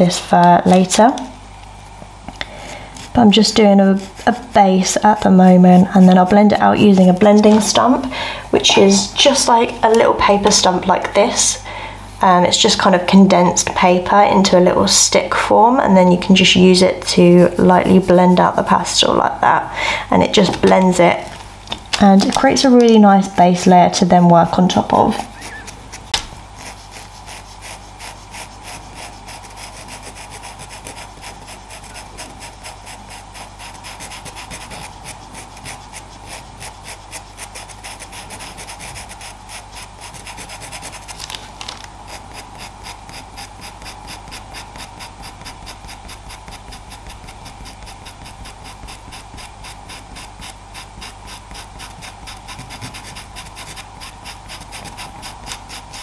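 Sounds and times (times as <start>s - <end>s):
faint steady hum: 0.0s - 56.0s
pencil scratching on paper: 0.2s - 1.0s, 2.7s - 8.0s, 25.1s - 41.2s, 42.1s - 56.0s.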